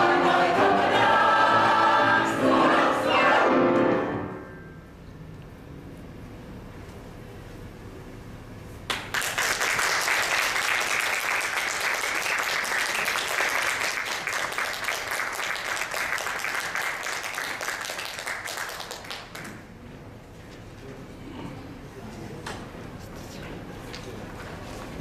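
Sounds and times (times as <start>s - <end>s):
audience applauding: 8.9s - 19.6s.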